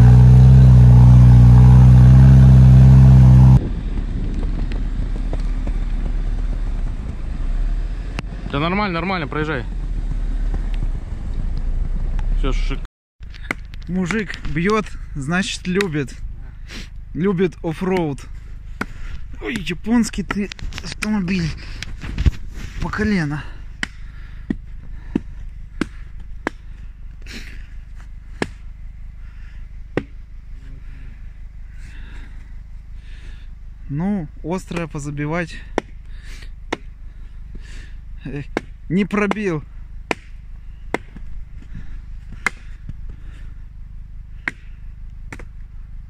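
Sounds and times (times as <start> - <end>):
hammer blows: 0.0 - 3.6
low rumble: 0.0 - 12.8
low steady rumble: 0.0 - 46.0.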